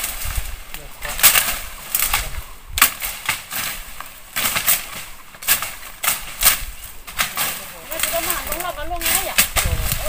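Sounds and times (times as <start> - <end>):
leaves and stems rustling: 0.0 - 10.0.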